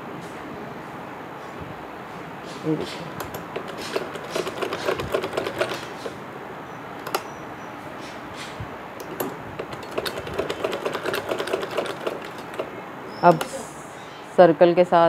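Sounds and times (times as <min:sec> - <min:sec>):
sewing machine stitching: 0:03.2 - 0:06.2, 0:09.0 - 0:13.5.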